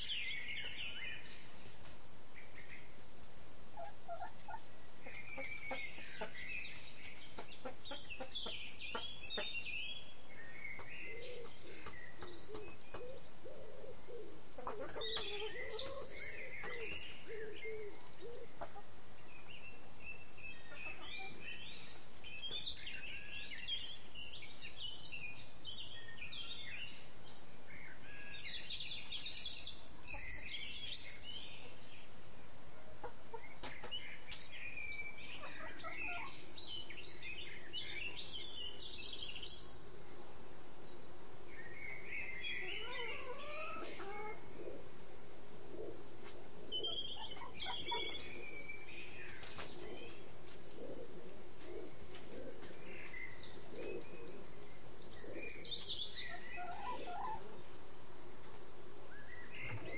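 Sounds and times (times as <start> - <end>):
birds chirping and twittering: 0.0 - 59.9
low cooing call: 11.0 - 18.7, 42.5 - 45.0, 50.8 - 54.6.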